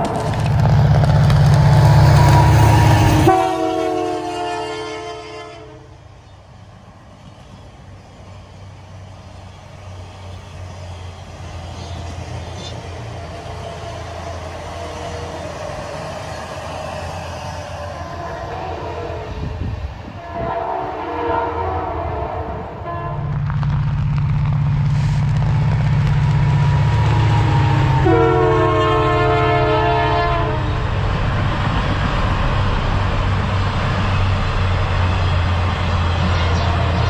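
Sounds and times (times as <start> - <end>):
train cars rumbling past: 0.0 - 37.0
locomotive horn: 1.8 - 6.0, 13.5 - 15.6, 17.9 - 19.6, 20.2 - 23.3, 27.0 - 30.8.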